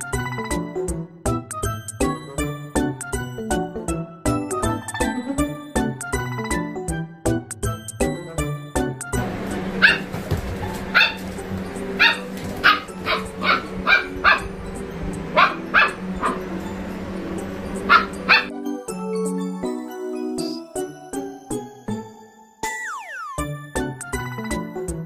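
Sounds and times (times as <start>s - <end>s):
jingly background music: 0.0s - 25.0s
steady low hum: 9.2s - 18.5s
dog barking: 9.8s - 11.3s, 12.0s - 14.6s, 15.3s - 16.6s, 17.8s - 18.5s.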